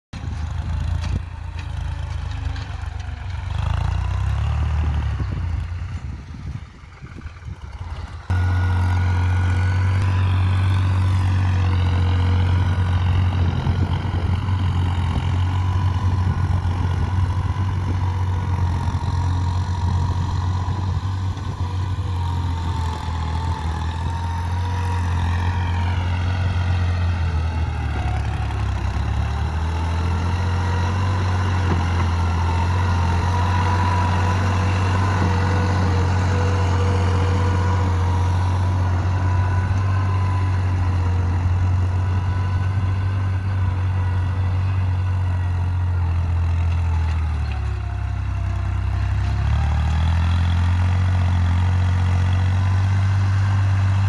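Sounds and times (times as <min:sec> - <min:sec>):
tractor diesel engine running: 0:00.1 - 0:54.0.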